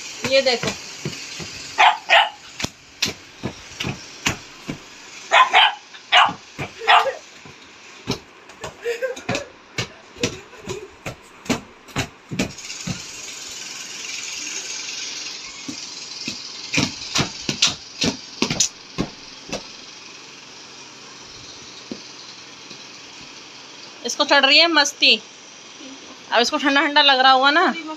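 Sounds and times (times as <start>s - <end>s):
slaps and thumps on a bed: 2.6s - 5.0s, 6.2s - 13.2s, 15.6s - 19.8s.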